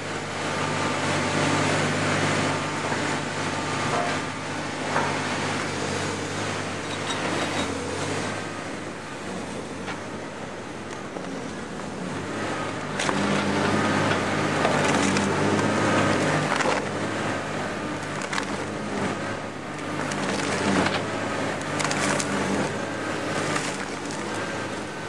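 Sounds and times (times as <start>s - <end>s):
shredder machine drone: 0.0s - 25.0s
wood cracking and splintering: 12.9s - 17.1s, 18.0s - 19.1s, 19.8s - 24.5s.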